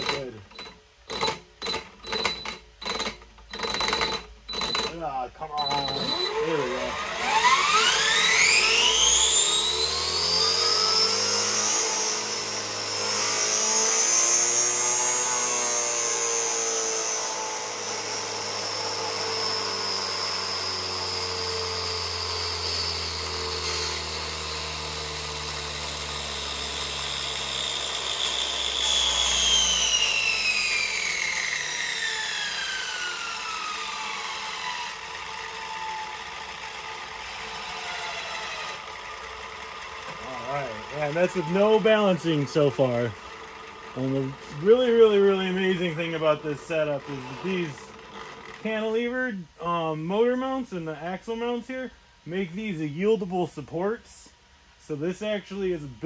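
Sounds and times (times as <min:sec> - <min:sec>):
motor driven disc whining: 0:00.0 - 0:17.2, 0:28.7 - 0:48.6.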